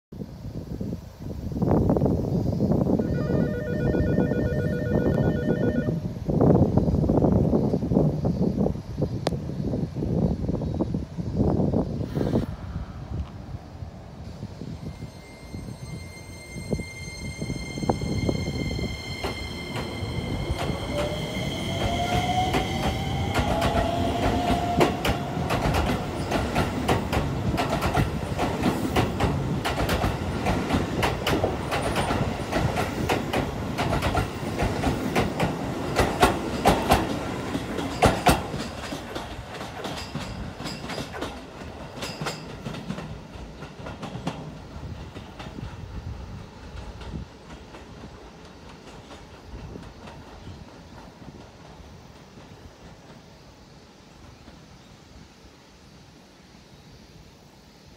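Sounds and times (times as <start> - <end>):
train wheels clattering over rail joints: 19.2 - 53.3.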